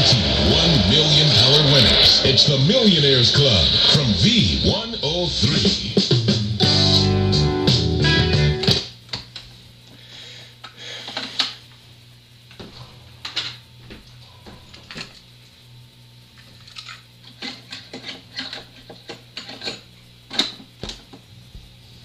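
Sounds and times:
low hum: 0.0s - 8.8s.

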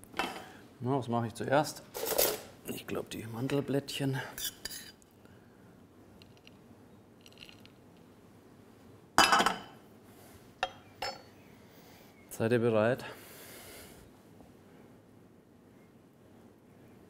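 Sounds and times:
metal spoon scraping a pan: 4.4s - 5.0s.

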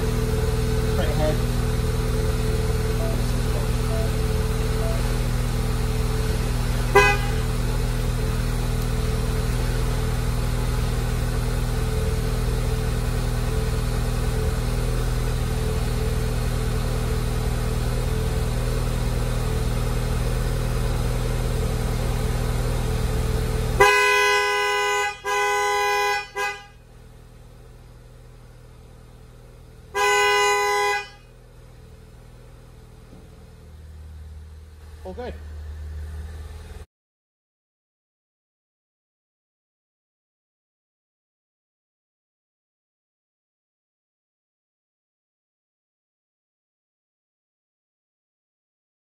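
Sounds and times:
car engine idling: 0.0s - 36.8s
car horn blasts: 6.0s - 7.8s, 23.7s - 26.8s, 29.9s - 31.4s.

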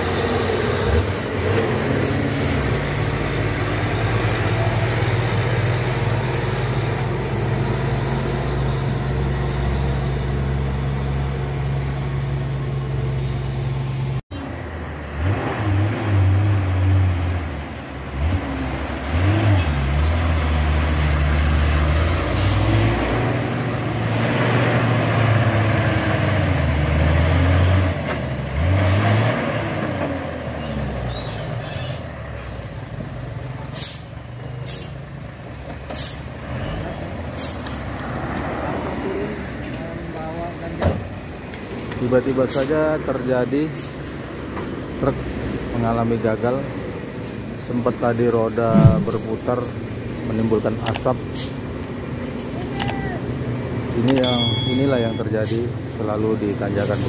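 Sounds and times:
truck diesel engine labouring: 0.0s - 57.0s.

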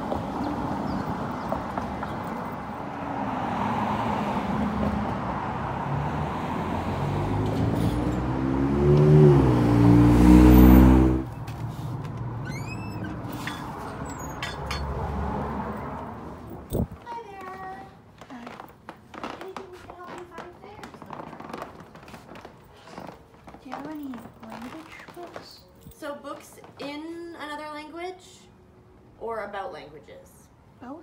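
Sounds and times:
passing vehicle engine: 0.0s - 17.0s
road traffic hum: 0.0s - 26.0s
light clicks and squeaks: 12.4s - 14.9s.

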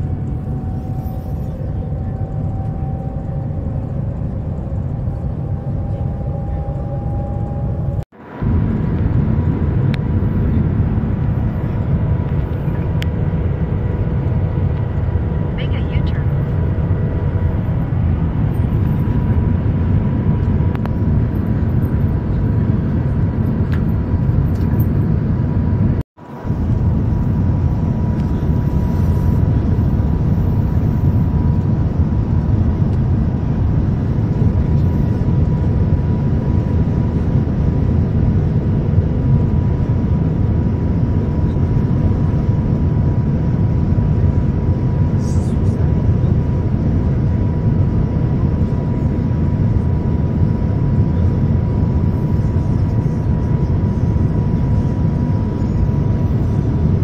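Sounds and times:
train cabin rumble: 0.0s - 37.3s
faint steady whine: 0.0s - 57.0s.

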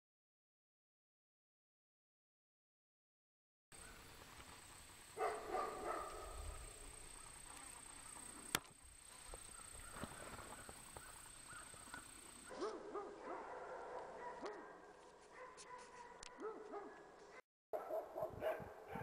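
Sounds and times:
dog barking in distance: 5.2s - 8.2s, 12.5s - 19.0s.

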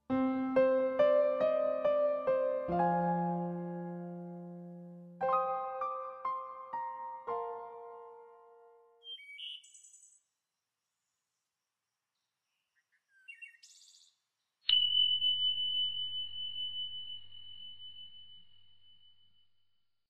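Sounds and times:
piano notes: 0.0s - 9.0s
high ringing tone: 14.7s - 19.4s.

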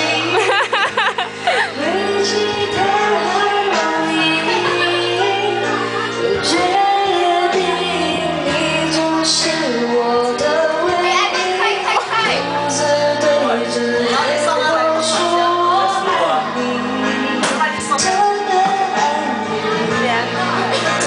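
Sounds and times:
backing track with drum beat: 0.0s - 21.0s
woman singing karaoke: 0.0s - 21.0s.

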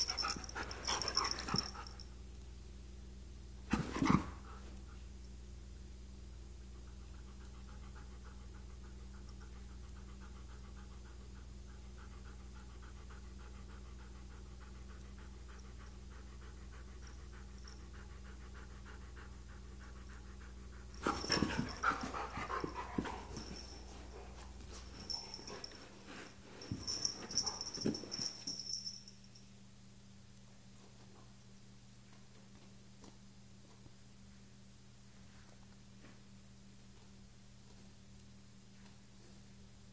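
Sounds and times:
dog panting: 0.0s - 2.0s, 6.9s - 28.4s.

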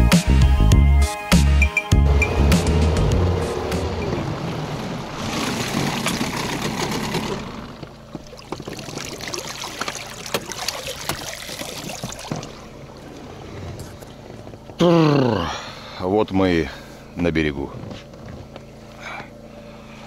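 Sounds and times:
water splashing along boat hull: 2.7s - 14.8s
water trickling and dripping: 8.2s - 13.9s.

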